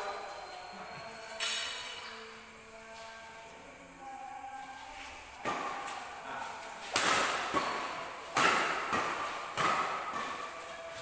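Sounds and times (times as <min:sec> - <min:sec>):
rackets hitting shuttlecock: 0:05.0 - 0:11.0.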